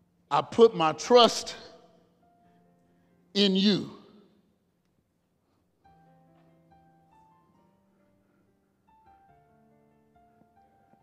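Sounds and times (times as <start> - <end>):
man's word echoing: 0.3 - 2.0, 3.4 - 4.4
soft keyboard chords: 5.8 - 11.0.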